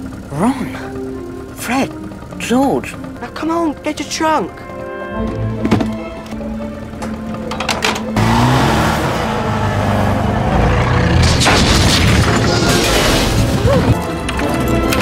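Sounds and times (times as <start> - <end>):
car engine revving hard: 8.2 - 11.8
crash of metal and masonry: 11.2 - 13.9.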